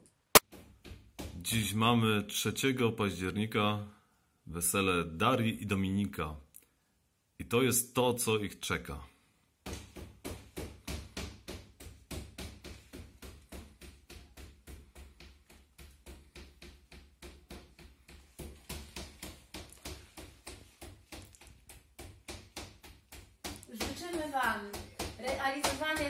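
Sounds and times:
rapid even tapping: 0:09.6 - 0:26.0.

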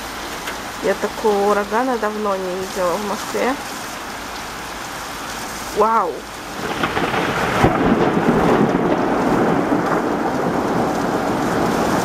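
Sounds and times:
heavy wind-driven rain: 0:00.0 - 0:12.0
thunder rumbling: 0:06.4 - 0:12.0
thunderclap: 0:06.6 - 0:12.0.

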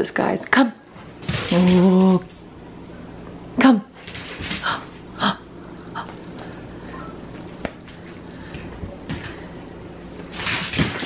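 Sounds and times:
dog scrabbling on wooden floor: 0:10.3 - 0:11.0.

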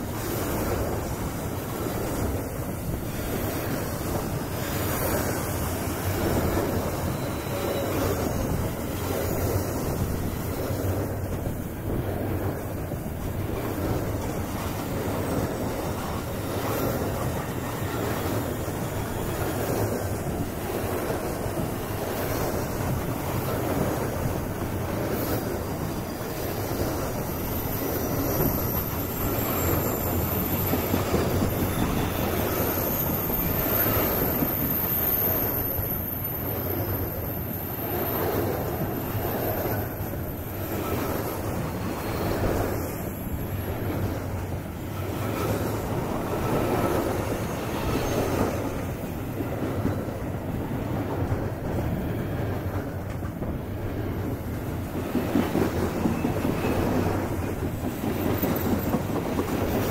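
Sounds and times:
train wheels rumbling on rail: 0:00.0 - 0:59.9
high wheel squeal: 0:04.6 - 0:09.0, 0:26.2 - 0:44.0, 0:44.9 - 0:49.4.

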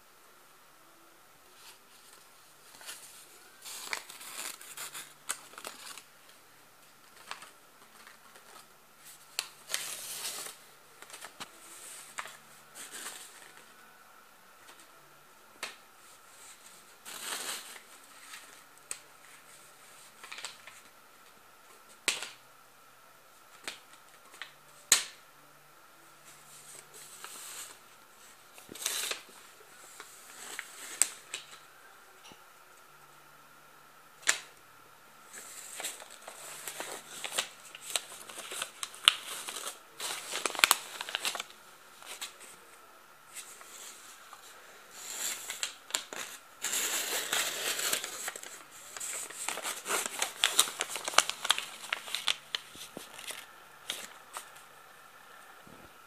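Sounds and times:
paper rustling: 0:01.5 - 0:06.4, 0:07.0 - 0:13.8, 0:15.6 - 0:20.9, 0:35.3 - 0:42.7, 0:43.3 - 0:54.7.

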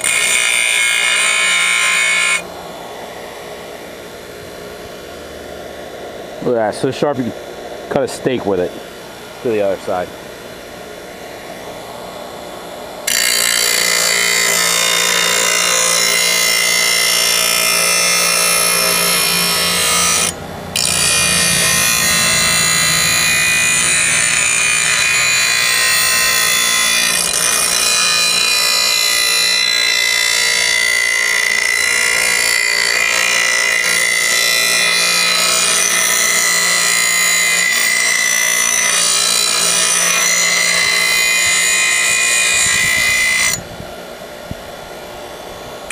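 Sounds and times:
grinder wheel grinding steel blade: 0:00.0 - 0:02.5, 0:13.0 - 0:43.6
bench grinder motor hum: 0:00.0 - 0:04.1, 0:09.5 - 0:43.7.

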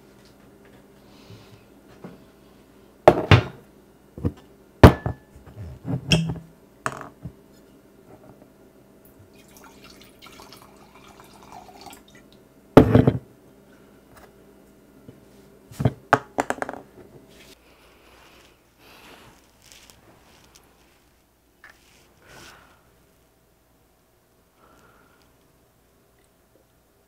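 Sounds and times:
bottle and glass knocking on countertop: 0:04.8 - 0:05.2, 0:12.8 - 0:13.2
wine pouring into glass: 0:09.3 - 0:12.2.

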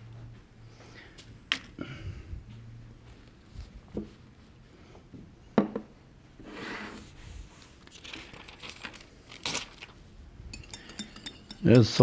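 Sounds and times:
packaging crinkling and rustling: 0:07.8 - 0:10.1.

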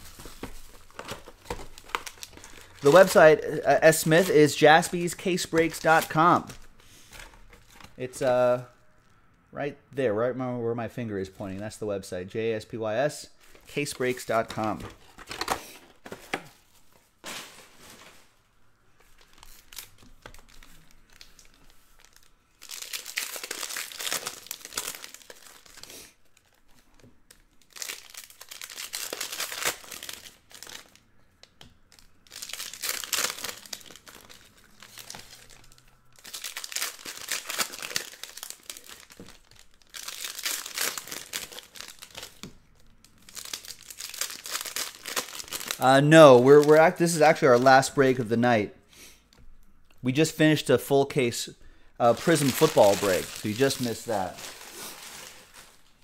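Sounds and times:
foil wrappers tearing and crinkling: 0:00.0 - 0:03.3, 0:19.1 - 0:31.0, 0:31.9 - 0:47.9, 0:52.0 - 0:56.0.

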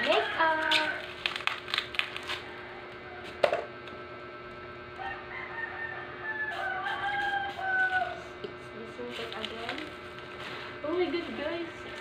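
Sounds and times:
rooster crowing: 0:00.0 - 0:01.0, 0:02.3 - 0:03.4, 0:05.0 - 0:08.4.

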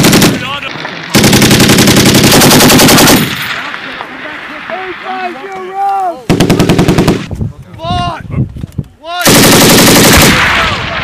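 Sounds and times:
machine gun bursts: 0:00.0 - 0:00.4, 0:01.1 - 0:03.5, 0:09.3 - 0:10.6.

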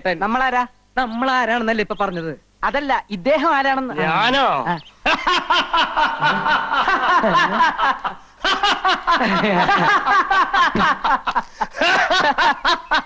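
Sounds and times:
man laughing: 0:04.0 - 0:13.0.

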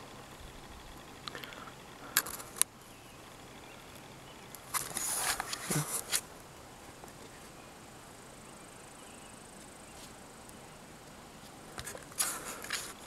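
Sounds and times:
sharp clicks: 0:00.8 - 0:02.8.

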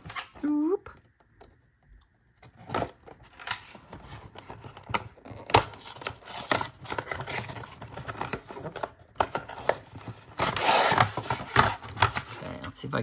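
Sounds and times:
cardboard packaging tearing and crinkling: 0:02.4 - 0:12.6.

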